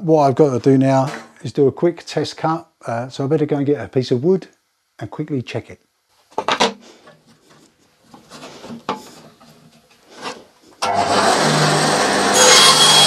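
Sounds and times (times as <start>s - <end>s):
bandsaw running with low hum: 10.1s - 13.0s.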